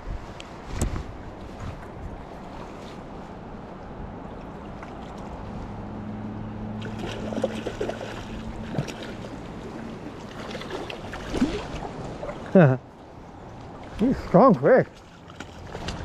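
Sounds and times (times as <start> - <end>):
fish splashing at surface: 6.8 - 9.4
river running over stones: 6.8 - 16.0.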